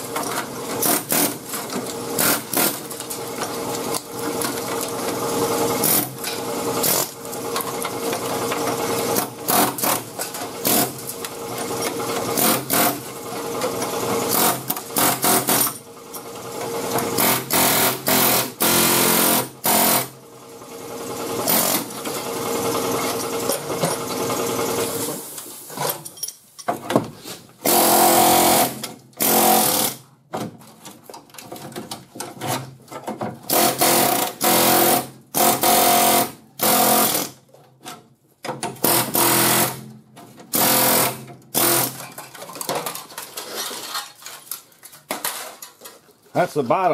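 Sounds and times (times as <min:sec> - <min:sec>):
air hammer chattering on sheet metal: 0:38.8 - 0:39.9.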